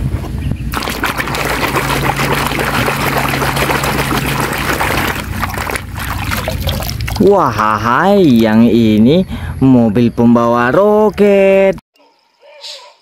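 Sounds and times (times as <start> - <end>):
water sloshing and splashing in basin: 0.7 - 8.7.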